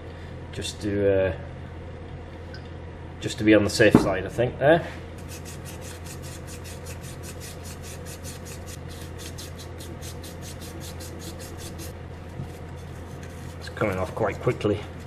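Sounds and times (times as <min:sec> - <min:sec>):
sandpaper rubbing on metal: 0:05.2 - 0:12.0, 0:12.8 - 0:15.0.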